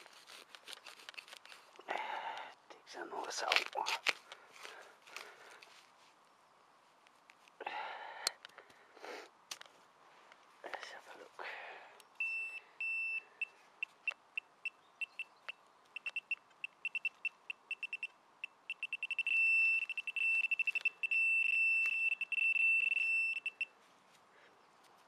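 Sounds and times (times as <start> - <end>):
pinpointer probe beeping: 12.2 - 23.7.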